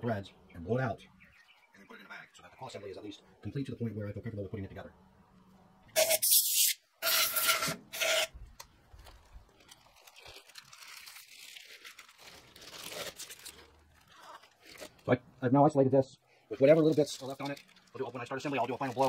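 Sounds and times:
compressed air hissing blasts: 6.0 - 7.6
plastic bag rustling: 8.8 - 15.1, 16.6 - 19.0.

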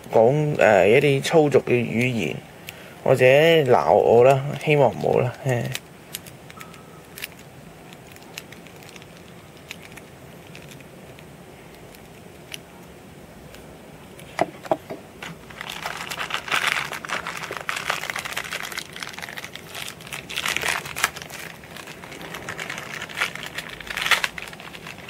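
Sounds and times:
plastic packaging crinkling: 3.6 - 12.6, 15.2 - 25.0.

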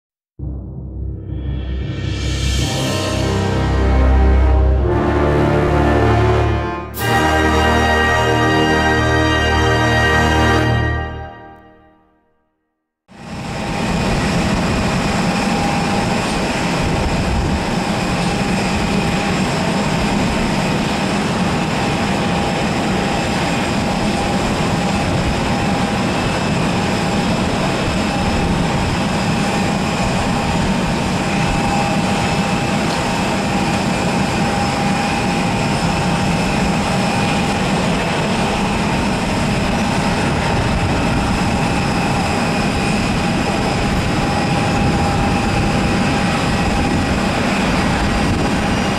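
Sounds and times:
jet engines rumbling with whine: 13.1 - 48.9.

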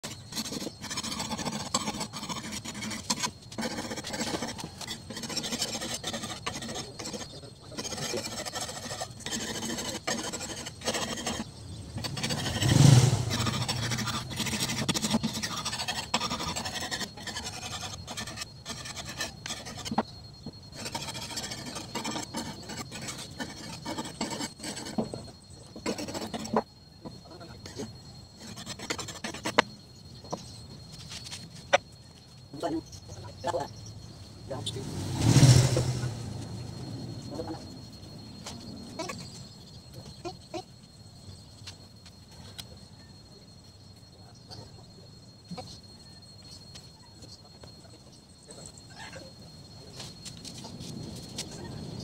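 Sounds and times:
hand saw rasping through wood: 0.0 - 11.4, 12.1 - 20.0.

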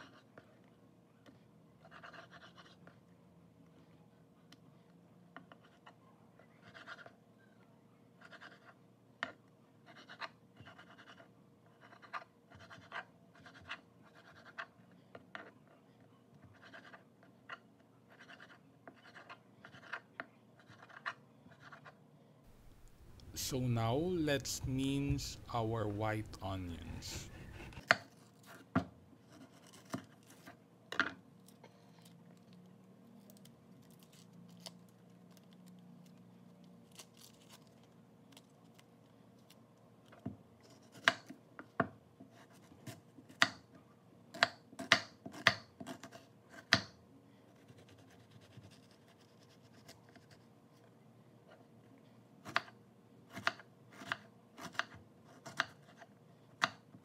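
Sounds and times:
knife chopping on wooden board: 44.4 - 46.9.

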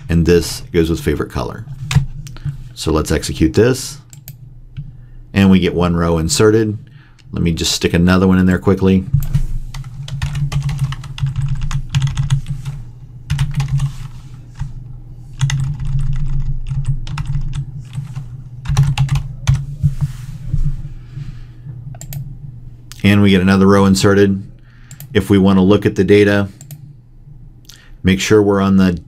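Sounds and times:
steady low hum: 0.0 - 29.0
typing on keyboard: 10.1 - 12.5, 13.3 - 14.0, 15.4 - 18.1, 18.7 - 19.6.

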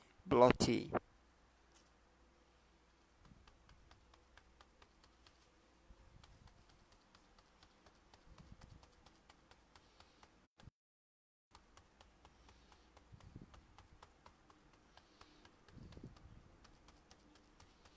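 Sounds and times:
sponge dauber tapping on stencil: 3.3 - 5.5, 11.5 - 17.9.

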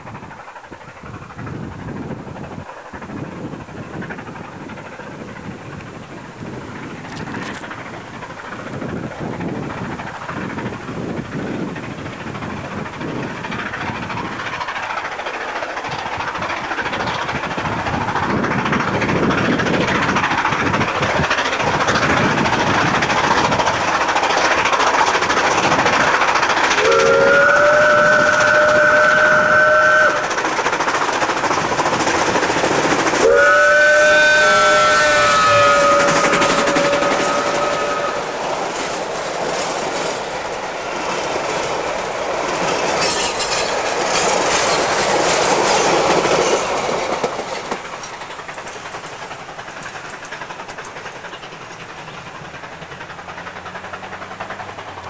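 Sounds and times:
steam train exhaust: 0.0 - 55.0
steam whistle: 26.8 - 30.3, 33.2 - 38.4.

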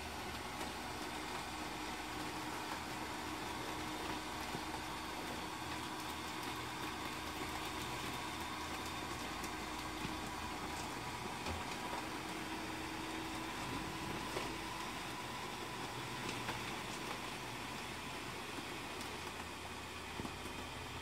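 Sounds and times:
electric blower fan humming: 0.0 - 21.0.

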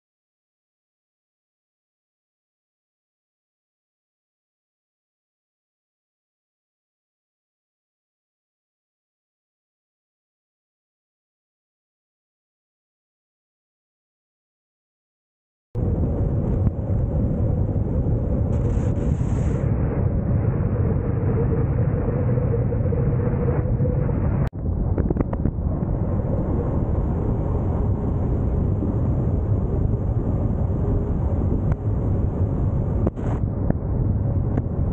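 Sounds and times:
road and wind noise from vehicle: 15.8 - 34.9.

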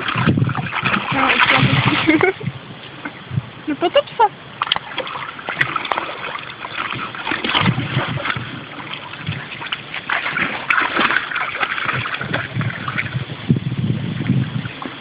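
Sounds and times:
dog splashing through water: 0.0 - 2.4, 4.6 - 13.3.

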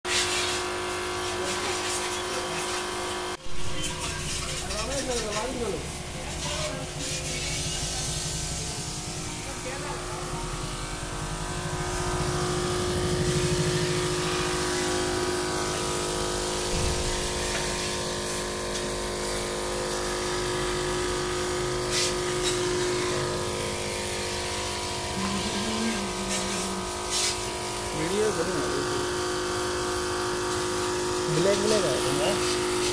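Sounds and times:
electric pump humming: 0.1 - 32.9.

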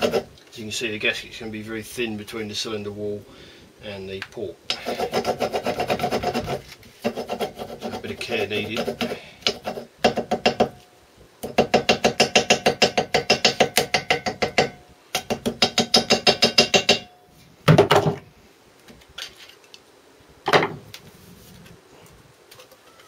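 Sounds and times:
hammer tapping on gasket paper: 8.7 - 10.8, 11.4 - 17.1.

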